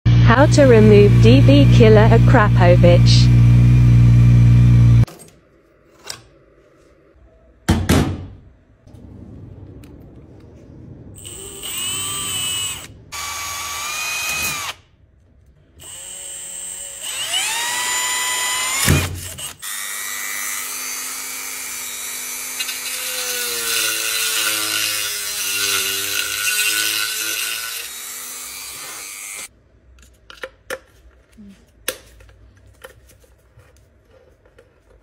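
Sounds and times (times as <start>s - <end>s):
rotary tool high whine: 0.1s - 5.1s, 11.2s - 14.8s, 15.8s - 29.5s
power drill whining: 11.2s - 14.8s, 15.8s - 29.5s.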